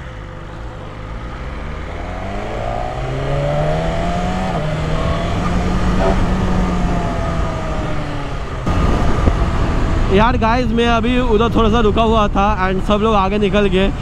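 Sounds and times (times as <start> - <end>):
motorcycle engine revving: 0.0 - 10.5
wind rush: 1.9 - 14.0.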